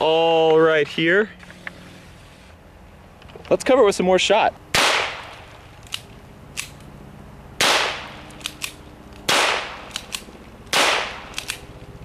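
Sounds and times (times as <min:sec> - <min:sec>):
pistol shots with echo: 0:04.7 - 0:05.4, 0:07.6 - 0:08.3, 0:09.3 - 0:10.1, 0:10.7 - 0:11.6
pistol action clicks: 0:05.2 - 0:06.9, 0:07.7 - 0:12.0.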